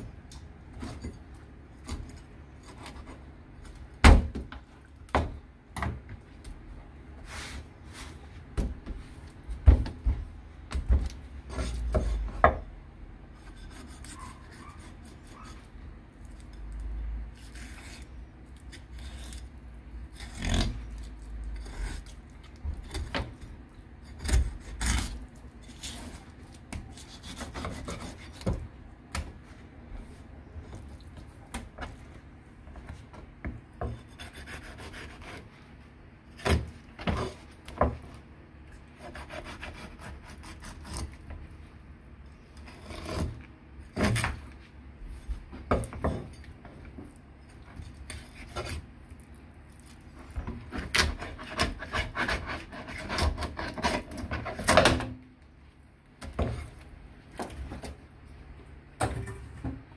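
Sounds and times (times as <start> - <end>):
knife scraping fish: 13.4 - 16.7, 17.3 - 28.6, 33.8 - 35.6, 39.0 - 41.2, 42.6 - 44.4, 47.8 - 48.9, 50.6 - 54.8.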